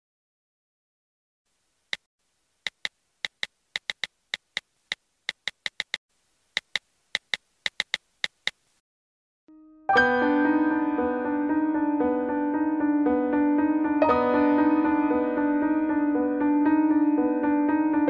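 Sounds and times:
smartphone keyboard tap clicks: 0:02.7 - 0:04.6, 0:05.3 - 0:06.0, 0:06.6 - 0:08.6.

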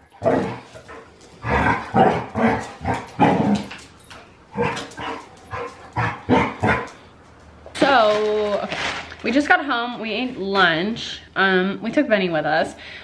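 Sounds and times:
dogs barking: 0:00.2 - 0:03.6, 0:04.5 - 0:07.0.

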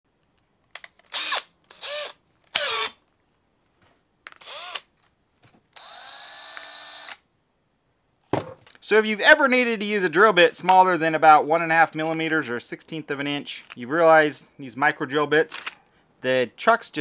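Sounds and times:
cordless drill motor whining: 0:01.1 - 0:03.0, 0:04.4 - 0:04.9, 0:05.8 - 0:07.2.

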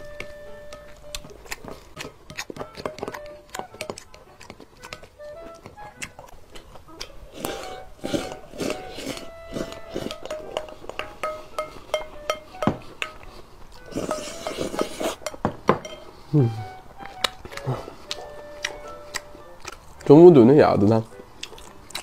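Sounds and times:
close-up eating sounds: 0:00.0 - 0:22.0
light background music: 0:00.0 - 0:22.0
spoon scraping glass bowl: 0:07.4 - 0:16.2.

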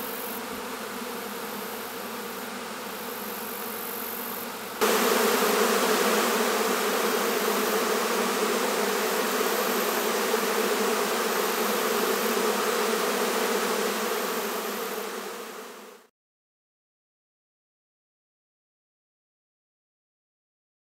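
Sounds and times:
swarm of bees buzzing: 0:00.0 - 0:16.1.

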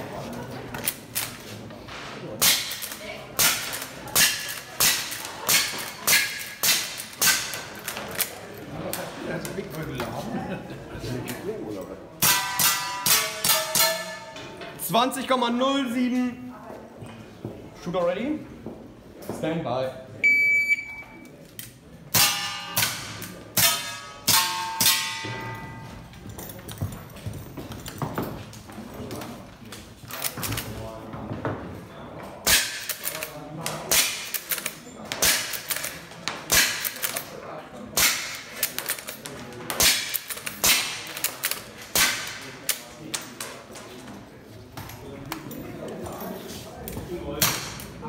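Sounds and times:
pellets clanging on metal targets: 0:02.4 - 0:08.0, 0:12.2 - 0:14.7, 0:22.1 - 0:28.2
shot timer beep: 0:20.2 - 0:21.2.

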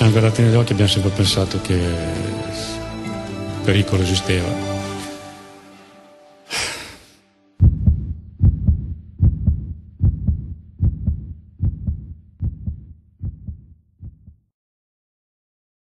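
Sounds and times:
heartbeat double thumps: 0:07.6 - 0:14.5.

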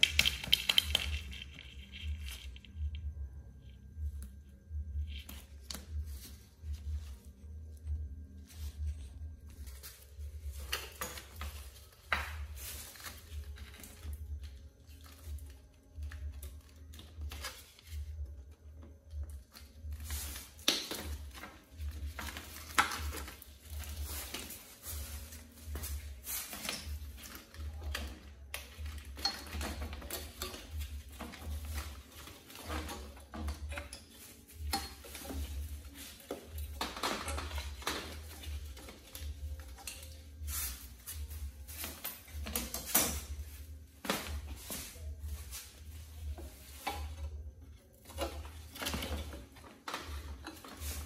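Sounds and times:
steel parts clinking and rattling: 0:00.0 - 0:03.1, 0:20.0 - 0:51.0.

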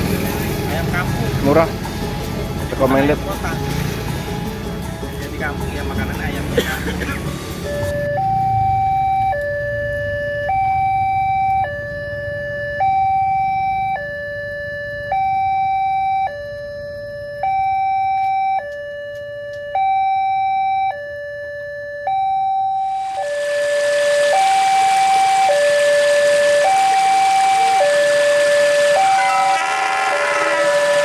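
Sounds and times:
level crossing two-tone alarm: 0:07.6 - 0:31.0.

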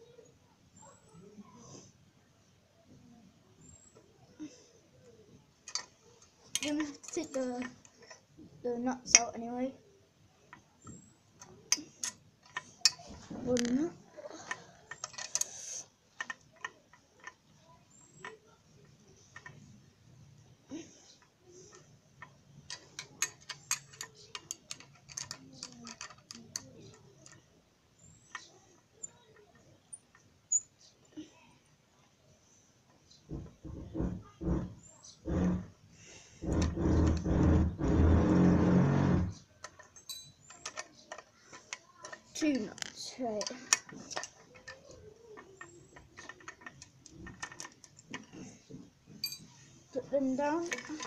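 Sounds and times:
rasping mechanical grinding of nut: 0:33.9 - 0:39.4.

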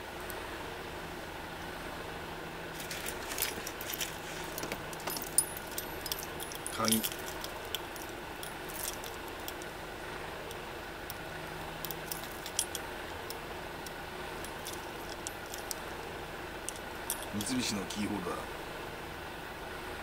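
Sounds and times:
faint steady hum: 0:00.0 - 0:20.0
keys jangling: 0:02.8 - 0:09.7, 0:11.8 - 0:12.8, 0:14.4 - 0:15.8, 0:16.6 - 0:17.5.

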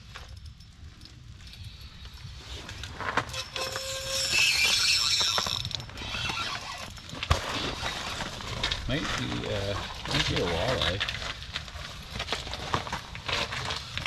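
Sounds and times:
fishing reel clicking and whirring: 0:03.3 - 0:06.8.

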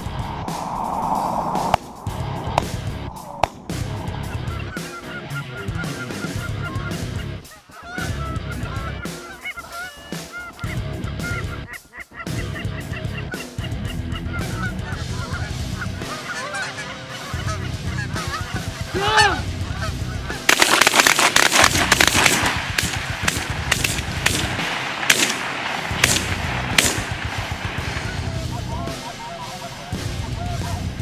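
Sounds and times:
geese honking: 0:04.1 - 0:31.0
shotguns firing: 0:20.5 - 0:28.5.

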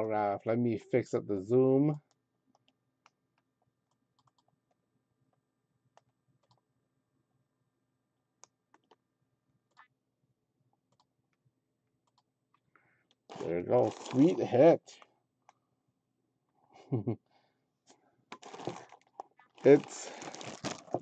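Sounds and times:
faint clicks and taps: 0:02.0 - 0:06.6, 0:08.4 - 0:09.0.

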